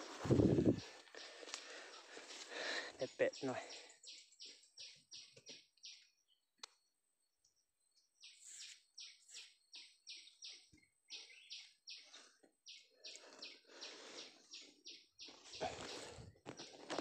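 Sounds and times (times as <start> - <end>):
scraping of digging dry earth: 0.0 - 1.0, 15.4 - 17.0
soil rustling: 0.0 - 2.9, 15.3 - 17.0.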